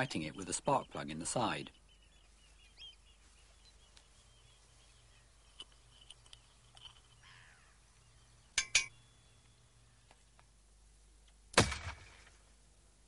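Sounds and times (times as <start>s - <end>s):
faint clicks: 5.5s - 7.6s.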